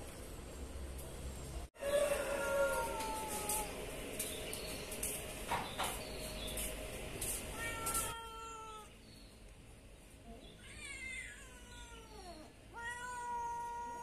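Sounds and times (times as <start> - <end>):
cat meowing: 7.5 - 8.9, 10.6 - 14.0.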